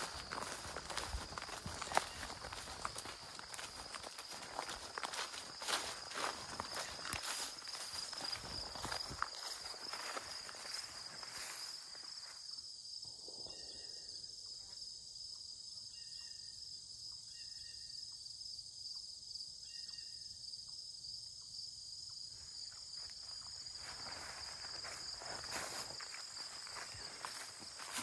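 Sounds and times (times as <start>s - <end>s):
footsteps through tall grass: 0.0s - 12.4s, 22.5s - 28.0s
crickets chirping: 0.0s - 28.0s.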